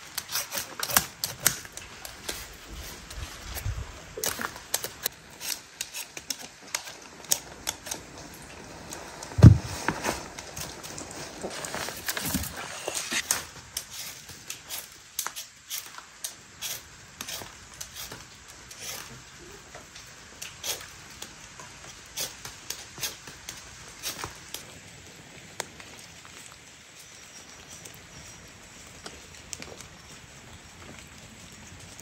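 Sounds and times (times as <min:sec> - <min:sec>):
knife scraping peel off root: 0:00.1 - 0:02.5, 0:04.2 - 0:07.0, 0:16.6 - 0:19.1, 0:20.5 - 0:20.9, 0:22.2 - 0:23.2.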